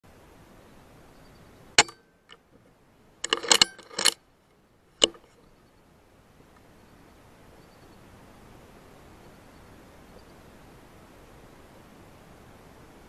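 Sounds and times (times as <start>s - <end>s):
sharp clicks and clacks: 3.2s - 4.2s, 5.0s - 5.4s.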